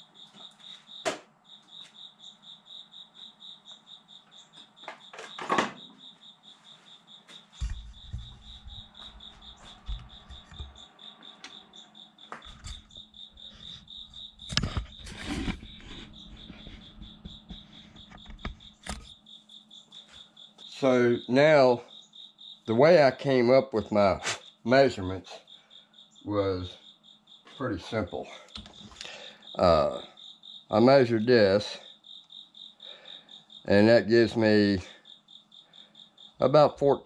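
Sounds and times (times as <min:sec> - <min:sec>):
cricket chirping: 0:00.0 - 0:37.0
equipment knocks and thumps: 0:07.6 - 0:10.9.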